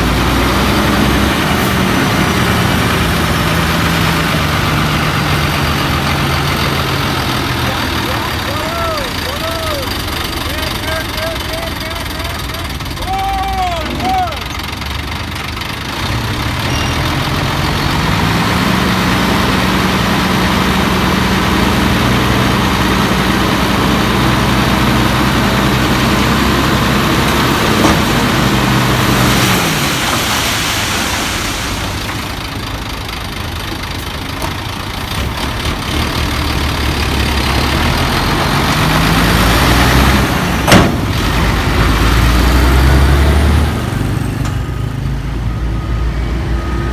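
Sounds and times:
diesel truck engine revving: 0.0 - 46.9
soil sliding out: 27.4 - 32.4.

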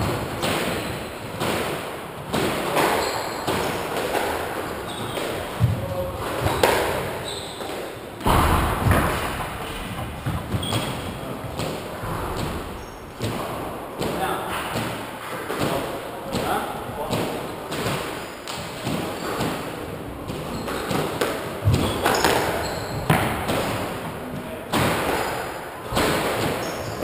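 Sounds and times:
squash ball thuds: 0.0 - 27.0.

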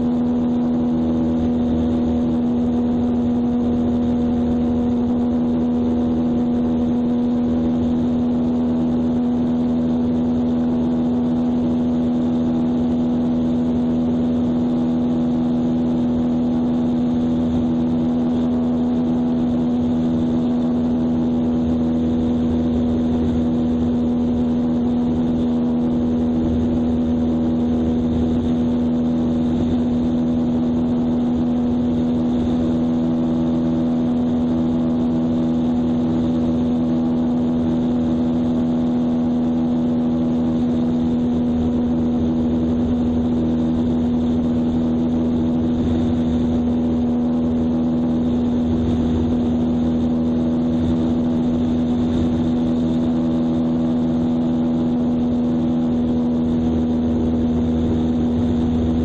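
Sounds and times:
light airplane engine droning: 0.0 - 59.0.

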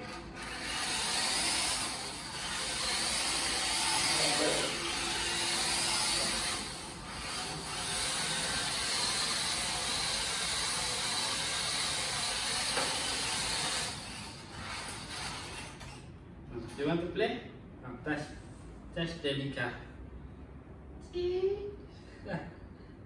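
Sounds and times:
electric motor whine: 0.0 - 14.9.

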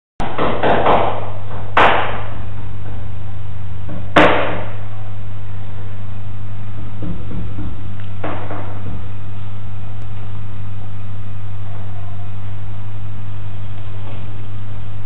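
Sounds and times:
sharp knocks: 0.2 - 2.4, 3.9 - 4.8, 7.0 - 9.0
steady low hum: 0.2 - 15.0.

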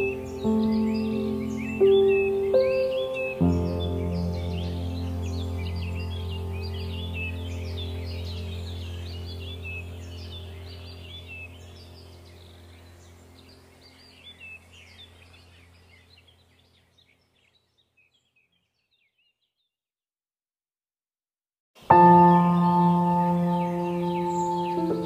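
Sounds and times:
low steady drone: 0.0 - 15.8, 22.0 - 25.0
birds chirping: 0.0 - 19.8, 21.8 - 25.0.

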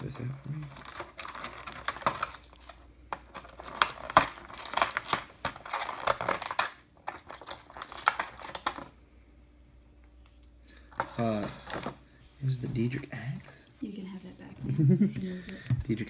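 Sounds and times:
plastic packaging crinkling: 0.0 - 8.9.

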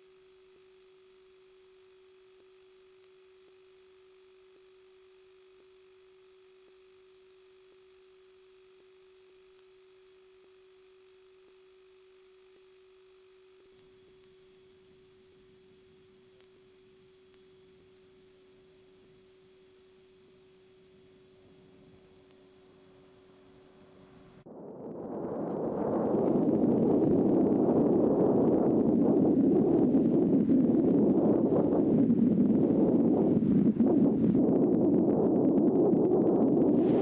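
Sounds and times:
faint high whine: 0.0 - 37.0
faint ticks: 0.1 - 24.4, 25.4 - 36.8
low rumbling noise: 24.5 - 37.0
low electronic tone: 34.5 - 37.0.

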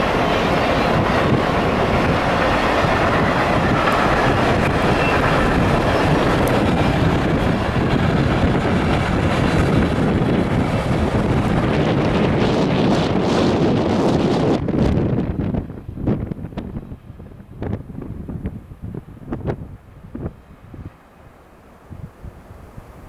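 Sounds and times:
steel wheels on rail: 0.0 - 15.6.

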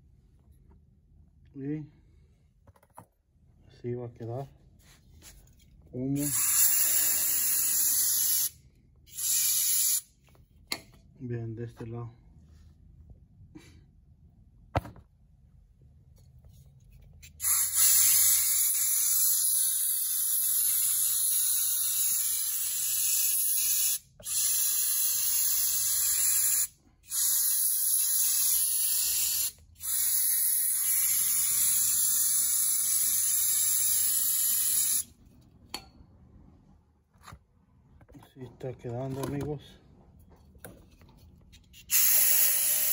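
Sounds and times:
aerosol can spraying: 6.2 - 10.1, 17.2 - 35.1, 41.8 - 42.9.

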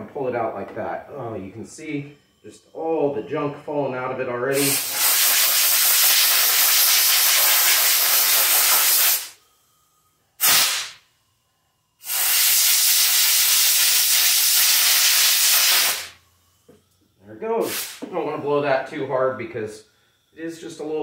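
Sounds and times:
compressed air blow gun hissing: 4.6 - 9.4, 10.4 - 11.0, 12.0 - 16.2, 17.6 - 18.1.

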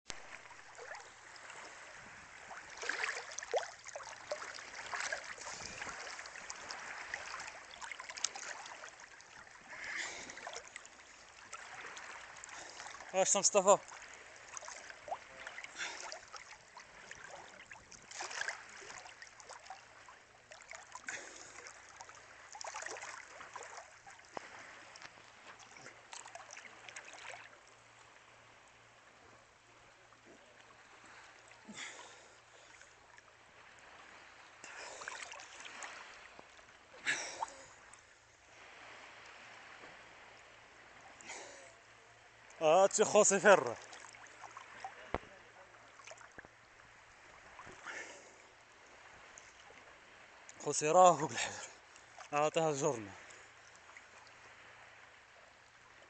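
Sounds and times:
sea water lapping: 0.1 - 56.0.

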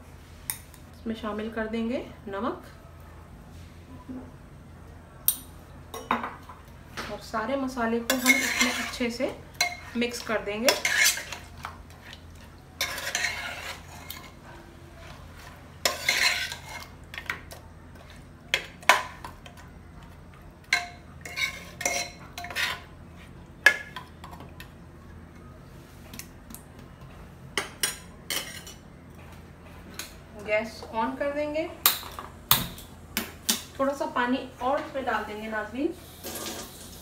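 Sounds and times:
spoon scraping a pot: 8.0 - 14.4, 15.0 - 19.6, 20.7 - 24.1.

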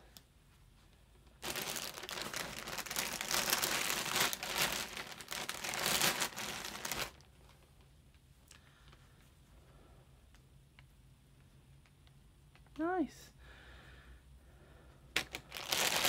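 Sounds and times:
plastic bag crinkling: 1.4 - 7.6, 15.2 - 16.0.

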